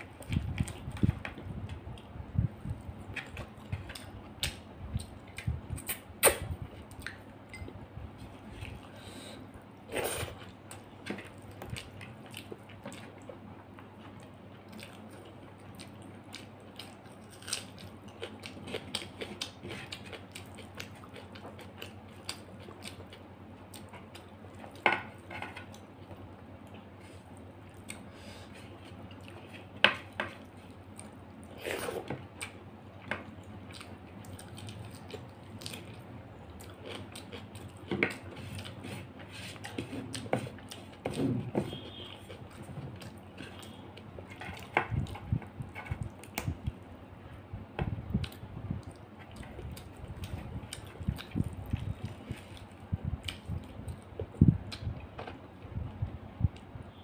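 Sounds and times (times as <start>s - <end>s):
chewing and lip smacks: 33.4s - 38.8s, 48.1s - 55.1s.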